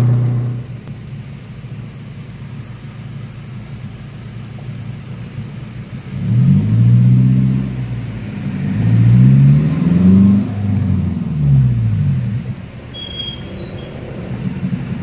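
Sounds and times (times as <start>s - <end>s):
loud exhaust note: 0.0s - 1.0s
van engine revving: 0.0s - 15.0s.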